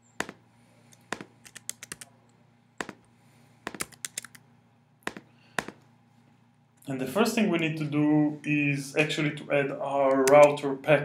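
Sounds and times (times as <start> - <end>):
computer keyboard keys tapping: 1.0 - 2.1, 2.8 - 3.1, 3.7 - 4.4, 5.1 - 5.8.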